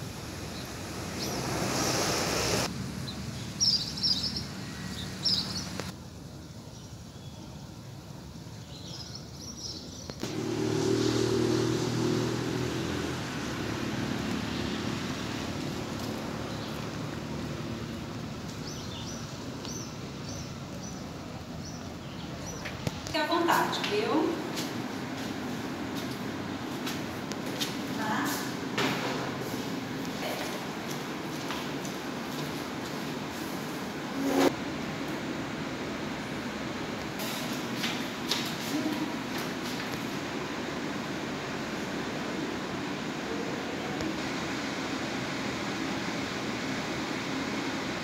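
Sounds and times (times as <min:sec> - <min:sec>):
birds chirping: 0:03.0 - 0:05.9, 0:16.0 - 0:24.1
motor vehicle engine humming: 0:10.2 - 0:23.6.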